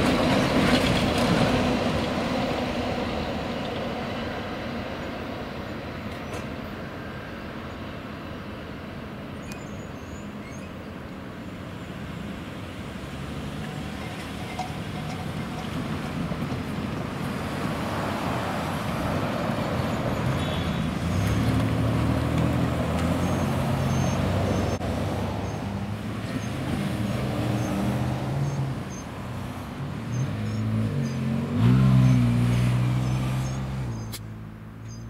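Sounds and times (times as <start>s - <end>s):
cars driving past: 11.4s - 35.0s
car passing close: 12.5s - 35.0s.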